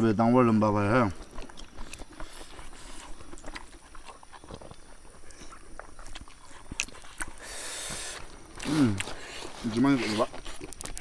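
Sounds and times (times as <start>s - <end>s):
people chewing food: 0.0s - 11.0s.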